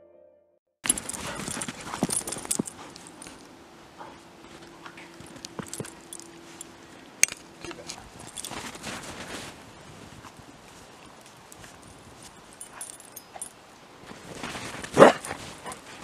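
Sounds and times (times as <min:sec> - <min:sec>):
small clinking jingles: 0:00.8 - 0:03.5, 0:04.5 - 0:07.4, 0:08.2 - 0:09.1, 0:11.0 - 0:13.6
paws crunching through snow: 0:00.9 - 0:06.7, 0:07.9 - 0:12.9, 0:14.0 - 0:16.0
faint steady hum: 0:00.9 - 0:16.0.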